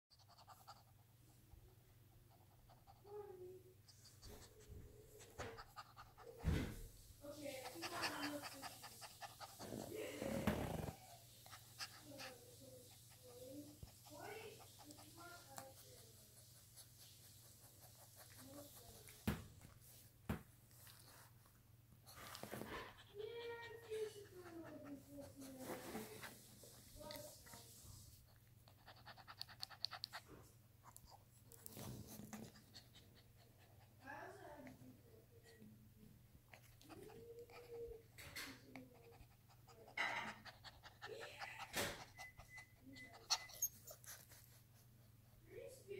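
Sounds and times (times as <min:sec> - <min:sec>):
puppy panting: 0:00.1 - 0:19.2, 0:22.2 - 0:35.6, 0:36.4 - 0:45.9
soft rustle: 0:23.6 - 0:28.5.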